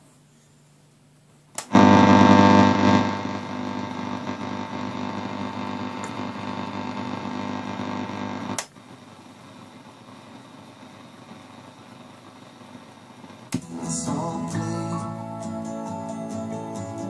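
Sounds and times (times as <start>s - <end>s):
radio buzzing hum: 1.6s - 13.6s.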